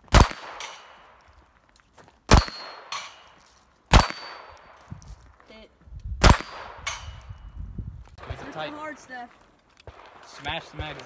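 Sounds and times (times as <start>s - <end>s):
pistol shots: 0.1s - 1.2s, 2.3s - 4.8s, 6.2s - 7.4s
steel target plate clanging: 2.4s - 4.7s.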